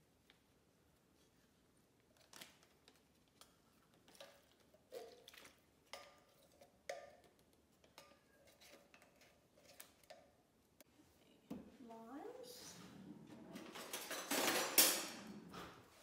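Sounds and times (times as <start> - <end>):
kitchen utensils clicking and knocking: 13.2 - 15.6.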